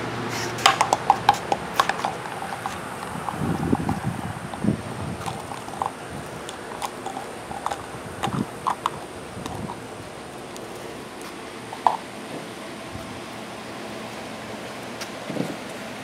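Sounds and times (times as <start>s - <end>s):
puppy scrabbling on pavement: 0.3s - 12.5s.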